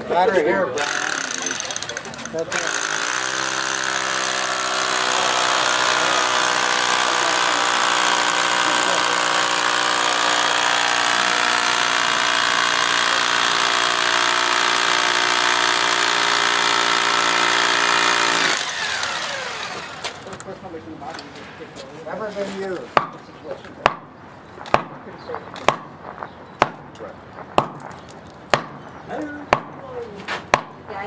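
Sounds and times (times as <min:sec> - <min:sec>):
rotary hammer hammering into stone: 0:23.0 - 0:23.2, 0:23.8 - 0:24.1, 0:24.7 - 0:25.0, 0:25.6 - 0:26.0, 0:26.6 - 0:26.9, 0:27.6 - 0:28.8, 0:29.5 - 0:29.8, 0:30.5 - 0:30.8.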